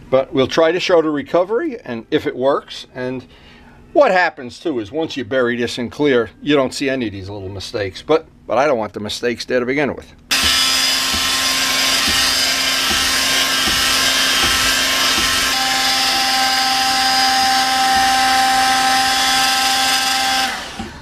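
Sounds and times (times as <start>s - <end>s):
heat gun running: 10.3s - 21.0s
steady whine: 10.3s - 21.0s.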